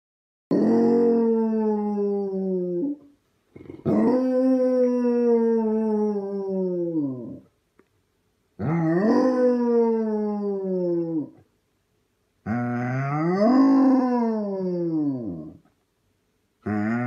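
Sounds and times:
dog howling: 0.5s - 3.0s, 3.8s - 7.4s, 8.6s - 11.4s, 12.5s - 15.6s, 16.7s - 17.0s.

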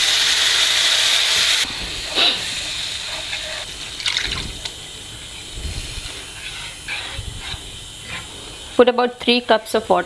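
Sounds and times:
soft sizzle: 0.0s - 10.0s
water sizzling in hot pan: 0.0s - 10.0s
spatula scraping pan: 2.6s - 3.8s, 6.0s - 8.9s.

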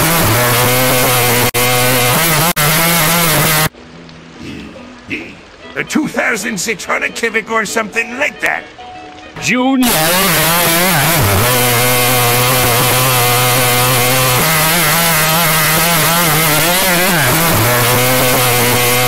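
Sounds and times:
harsh synthesized voice drone: 0.0s - 3.7s, 9.4s - 19.0s.

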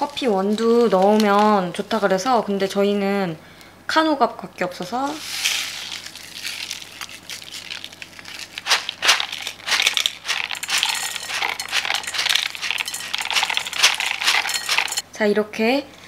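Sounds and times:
peppercorns dropping into pot: 5.1s - 15.0s
crinkling of small packets: 5.2s - 15.0s.

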